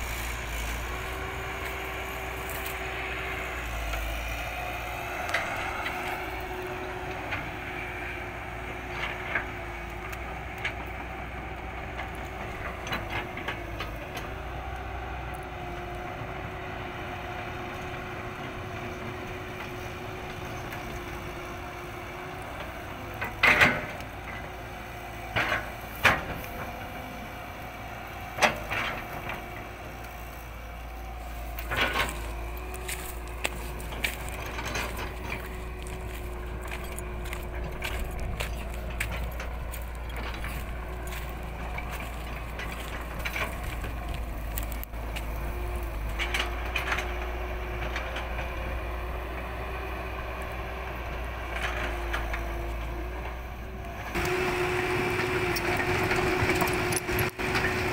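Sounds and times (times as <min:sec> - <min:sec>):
excavator diesel engine running: 0:00.0 - 0:57.9.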